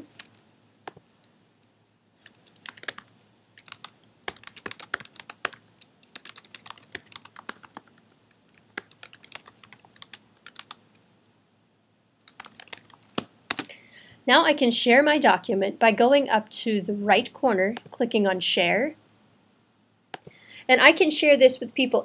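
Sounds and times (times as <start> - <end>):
keyboard typing clicks: 2.2 - 11.0, 12.2 - 13.7.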